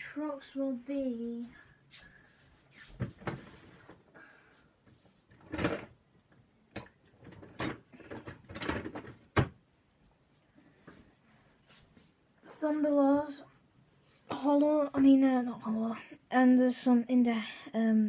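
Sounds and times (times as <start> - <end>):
objects knocking and clattering: 5.3 - 9.6.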